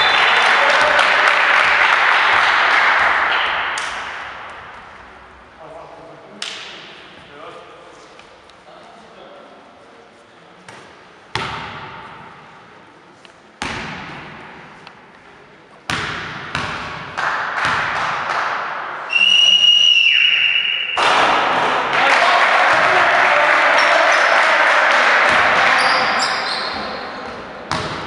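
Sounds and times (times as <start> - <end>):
high whistle-like tone: 19.1 - 21.0.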